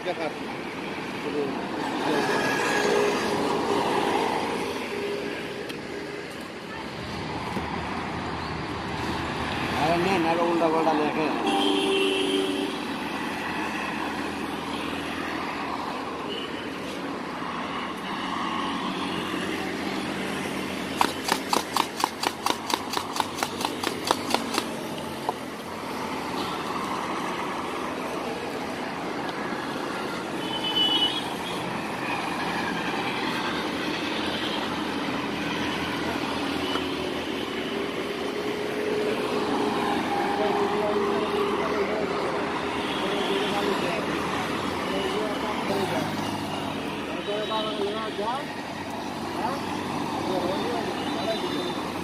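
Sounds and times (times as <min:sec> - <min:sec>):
road traffic: 0:00.0 - 0:52.0.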